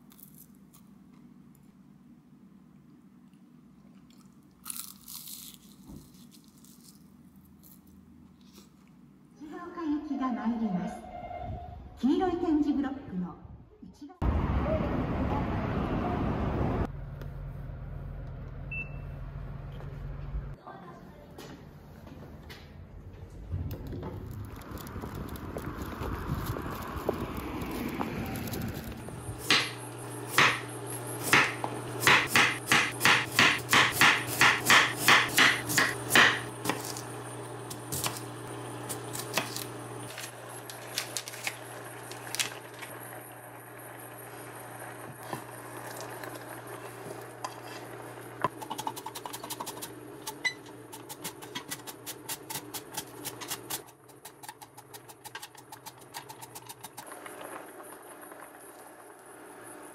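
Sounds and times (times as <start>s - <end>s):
knife chopping on cutting board: 30.4s - 30.6s, 31.3s - 37.0s.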